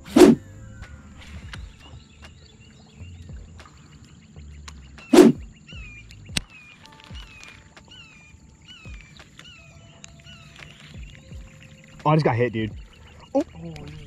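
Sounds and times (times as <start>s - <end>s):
loud whooshes: 0.0s - 0.4s, 5.1s - 5.4s
faint bird chirps: 0.1s - 14.0s.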